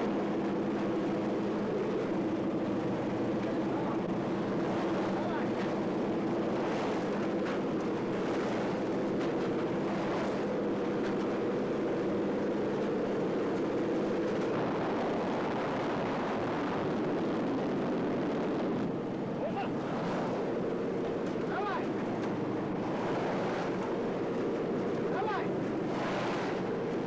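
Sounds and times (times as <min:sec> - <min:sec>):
aircraft engine droning: 0:00.0 - 0:27.0.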